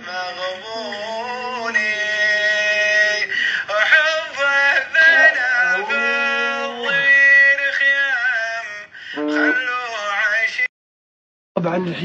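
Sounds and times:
person singing ornamented notes: 0:04.4 - 0:07.6, 0:09.2 - 0:09.8.

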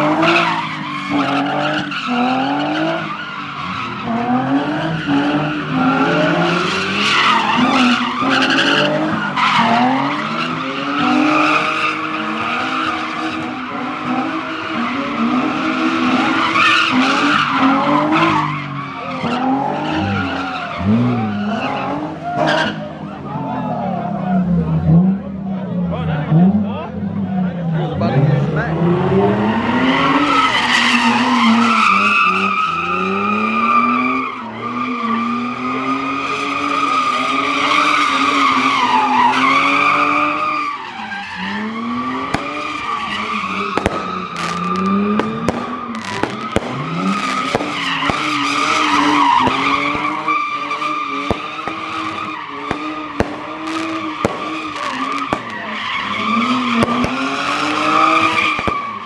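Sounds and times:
car engine revving: 0:00.0 - 0:59.0
car tires squealing: 0:00.0 - 0:59.0
sharp cracks: 0:42.2 - 0:50.2, 0:51.2 - 0:59.0.

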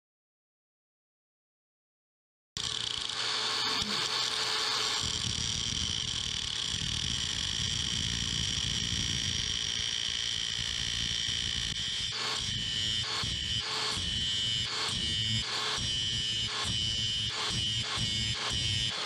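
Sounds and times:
angle grinder cutting steel: 0:02.6 - 0:19.0.

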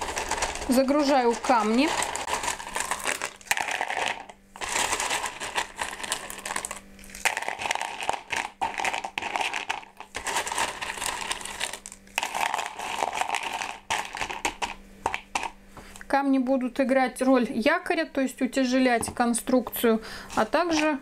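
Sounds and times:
small stones clattering in a pot: 0:00.0 - 0:15.6.

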